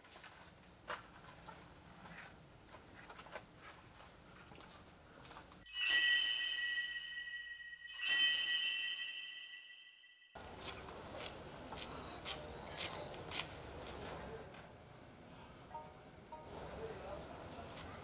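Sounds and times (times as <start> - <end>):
metal chime ringing: 5.6 - 10.4.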